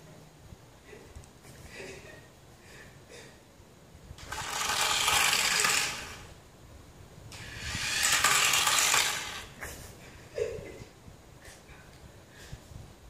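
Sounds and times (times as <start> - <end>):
toy car motor whirring: 4.2 - 6.3, 7.3 - 9.6.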